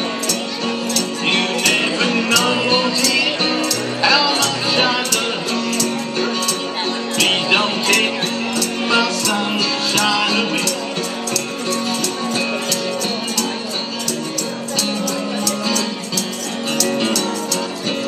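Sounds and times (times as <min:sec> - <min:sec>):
instrumental backing track: 0:00.0 - 0:18.0
tambourine shaken: 0:00.1 - 0:18.0.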